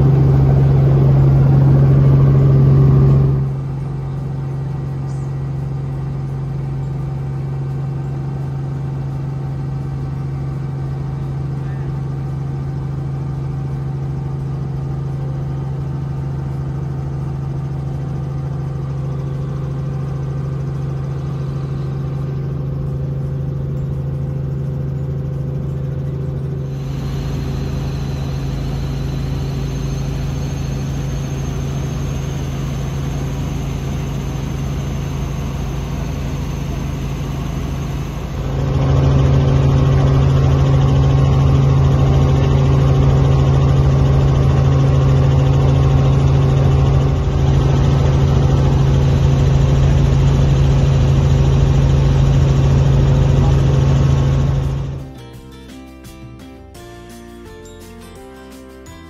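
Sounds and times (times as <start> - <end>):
helicopter engine and rotors droning: 0.0 - 56.0.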